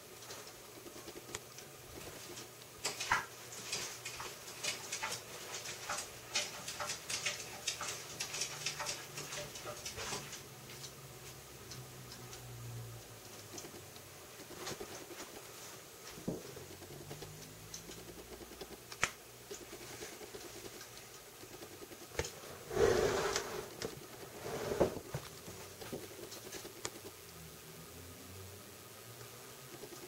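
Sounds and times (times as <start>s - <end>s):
rustling scrape: 22.4s - 25.6s.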